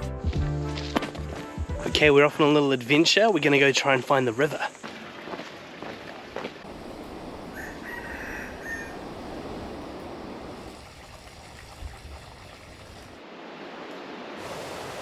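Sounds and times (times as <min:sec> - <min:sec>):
rooster crowing: 0:07.4 - 0:09.2.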